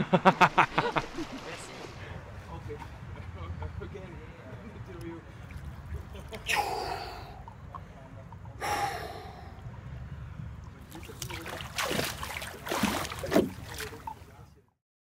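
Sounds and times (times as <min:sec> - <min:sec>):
water splashing and sloshing: 0:00.0 - 0:14.7
deep breath: 0:06.5 - 0:10.4.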